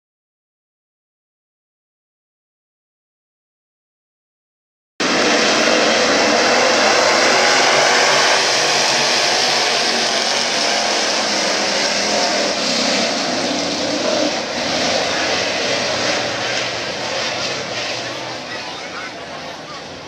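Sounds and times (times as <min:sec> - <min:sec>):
race car engines droning: 0:05.0 - 0:20.0.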